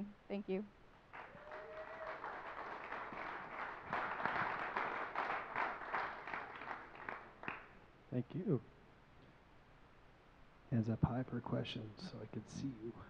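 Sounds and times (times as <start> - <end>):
audience applauding: 1.1 - 7.8.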